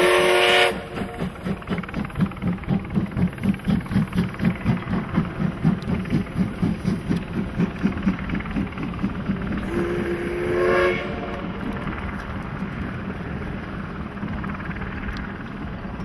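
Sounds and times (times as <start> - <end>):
steam whistle: 0.0 - 1.2, 9.6 - 11.6
steam locomotive exhaust chuffing: 0.0 - 16.0.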